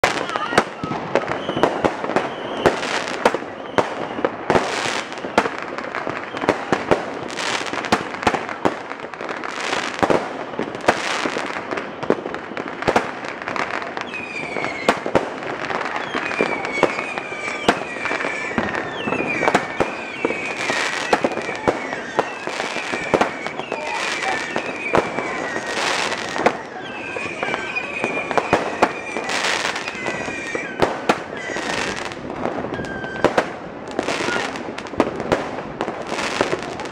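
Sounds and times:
fireworks bangs and crackles: 0.0s - 36.9s
high whistling tones: 14.0s - 15.0s, 15.9s - 30.8s.

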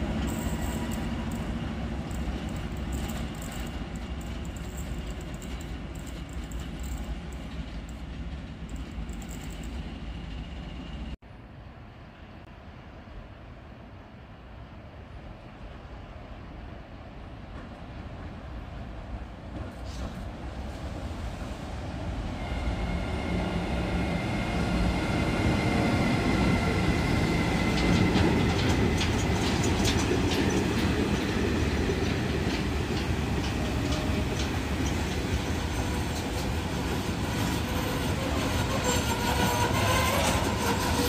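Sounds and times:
freight train rolling past: 0.0s - 41.0s
wagon wheels clacking on rail joints: 27.6s - 41.0s.

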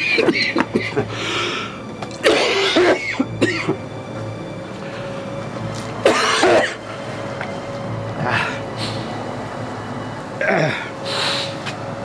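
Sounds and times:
background music: 0.0s - 12.0s
man coughing: 0.1s - 1.1s, 2.2s - 3.8s, 6.1s - 6.8s.

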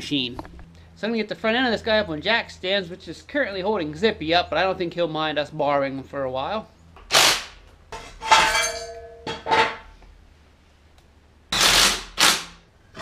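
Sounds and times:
impact wrench bursts: 7.1s - 7.6s, 11.5s - 12.6s.

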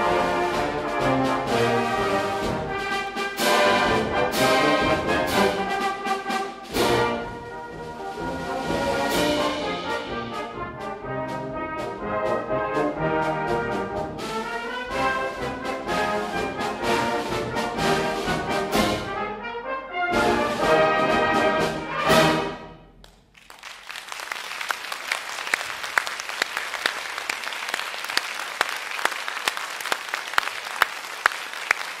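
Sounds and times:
brass band playing: 0.0s - 23.0s
audience applause: 23.3s - 32.0s.

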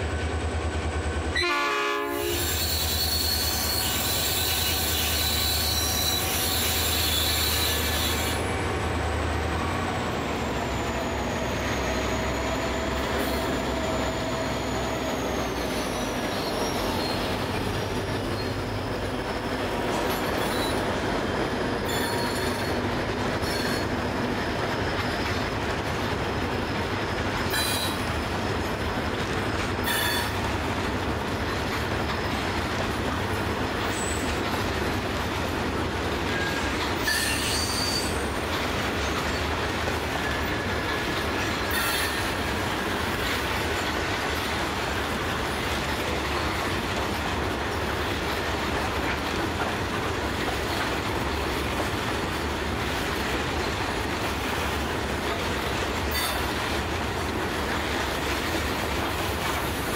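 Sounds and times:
train wagons rumbling on rails: 0.0s - 59.9s
metallic wheel squeals: 2.2s - 8.5s, 10.4s - 18.7s, 20.0s - 20.9s, 21.8s - 24.0s, 27.5s - 28.3s, 29.8s - 30.4s, 36.3s - 39.5s, 40.1s - 43.0s.

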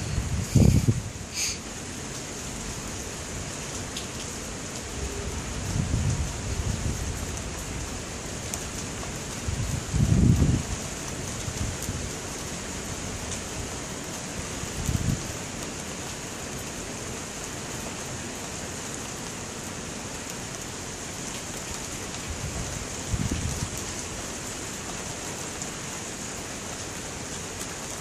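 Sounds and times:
thunderstorm hiss: 0.0s - 1.8s.

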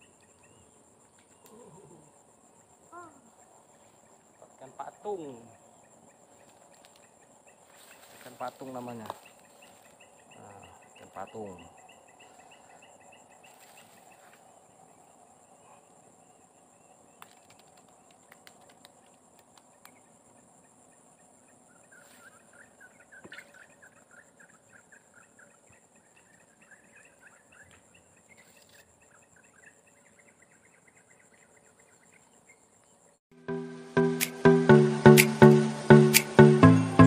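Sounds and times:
bird chirping: 0.0s - 18.4s, 19.6s - 33.2s
high insect drone: 0.0s - 27.4s.

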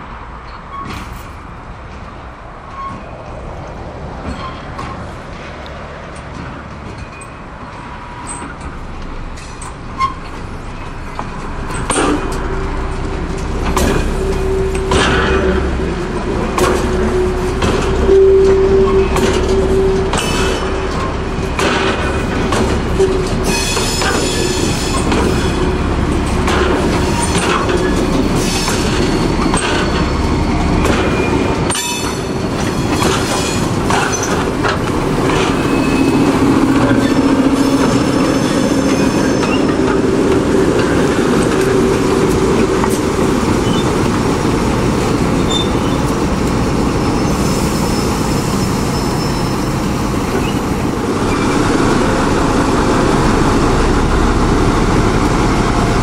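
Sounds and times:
diesel locomotive running: 0.0s - 56.0s
wheels clicking over rail joints: 0.4s - 47.3s
high wheel squeal: 9.4s - 44.1s, 45.3s - 52.2s.

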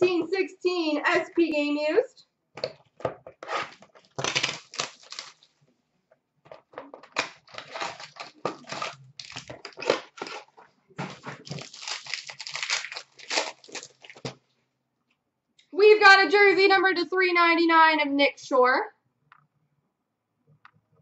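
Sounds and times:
packaging crinkling and tearing: 3.5s - 5.6s, 6.9s - 14.4s.

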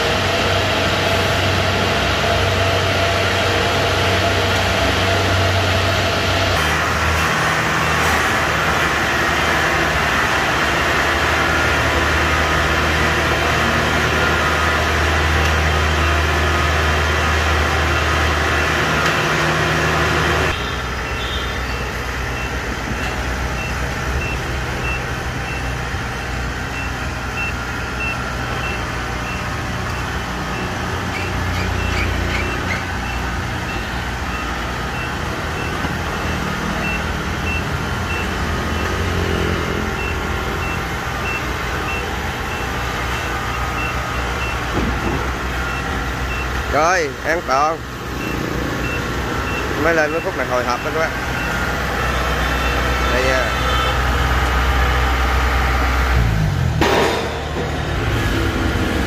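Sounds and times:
diesel engine running loudly: 0.0s - 59.0s
rapid high beeping alarm: 20.5s - 54.2s.

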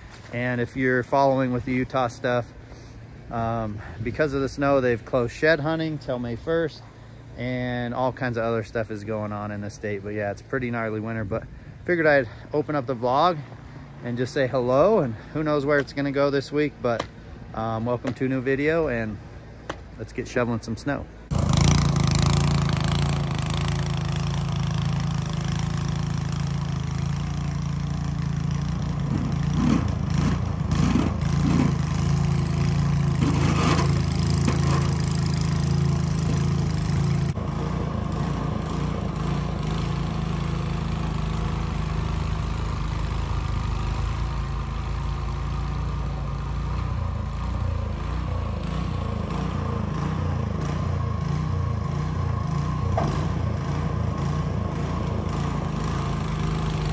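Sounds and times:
snow blower engine running: 21.3s - 56.9s.

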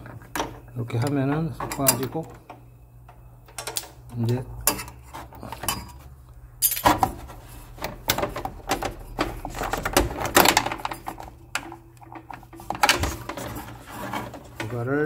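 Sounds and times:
low steady hum: 0.0s - 15.0s
plastic parts clicking and rattling: 7.8s - 14.9s.

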